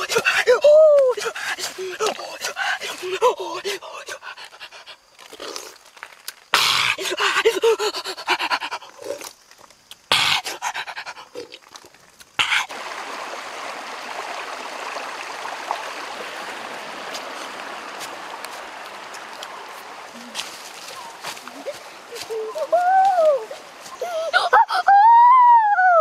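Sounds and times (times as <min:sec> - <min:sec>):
man gasping and panting: 0:00.0 - 0:05.0, 0:06.6 - 0:09.0
stream water flowing: 0:00.0 - 0:25.5
man gulping noisily: 0:05.2 - 0:07.2, 0:08.8 - 0:12.8.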